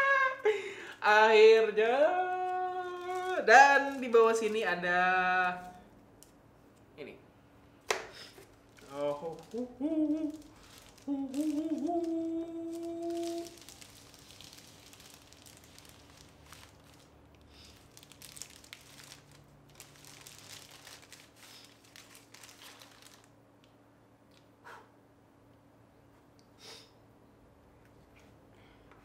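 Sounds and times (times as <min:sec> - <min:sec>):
man humming: 0:00.0 - 0:03.4, 0:08.8 - 0:13.6
plastic wrapping crinkling: 0:02.0 - 0:04.9, 0:08.1 - 0:23.7.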